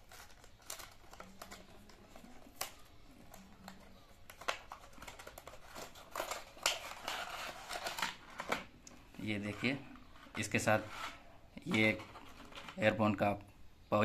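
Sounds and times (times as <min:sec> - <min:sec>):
packaging crinkling: 0:00.0 - 0:08.7.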